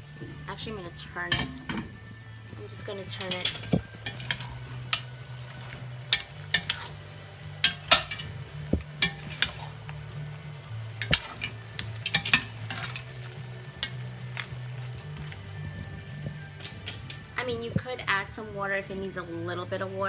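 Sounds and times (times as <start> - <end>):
stew sizzling: 0.0 - 17.5
metal spoon scraping a pot: 3.2 - 5.1, 6.0 - 7.0, 7.6 - 8.4, 9.0 - 9.9, 11.0 - 13.1.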